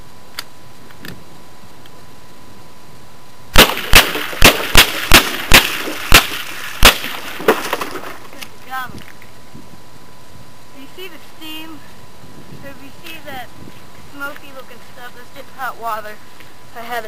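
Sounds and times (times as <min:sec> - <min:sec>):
rifle fired rapidly: 0:03.6 - 0:07.3.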